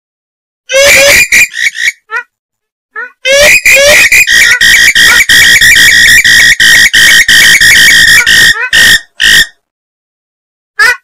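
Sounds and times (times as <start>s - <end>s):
swamphen harsh screeching calls: 0.7s - 2.0s, 3.0s - 9.6s.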